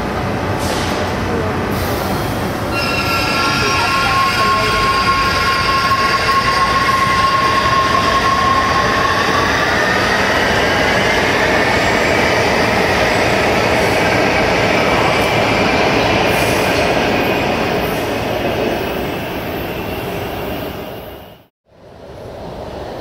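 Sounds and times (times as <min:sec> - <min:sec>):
subway train electric whine: 0:00.0 - 0:23.0
train wheels rumbling on rails: 0:00.0 - 0:23.0.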